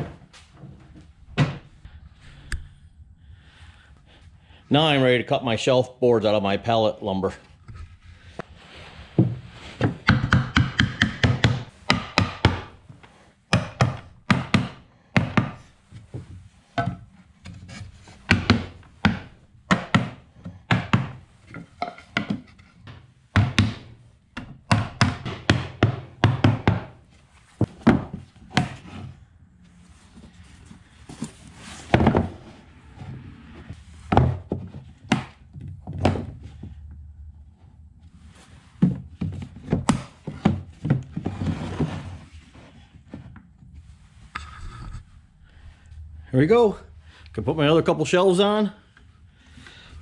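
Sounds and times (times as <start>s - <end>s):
hammer striking wood boards: 10.0s - 12.8s, 13.5s - 15.6s, 18.3s - 22.5s, 23.3s - 27.0s.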